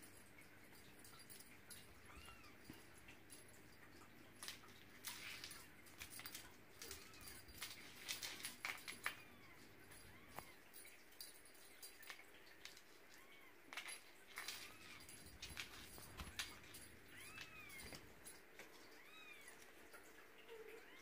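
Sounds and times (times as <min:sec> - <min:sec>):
kitten claws scratching on floor: 0:13.7 - 0:18.1.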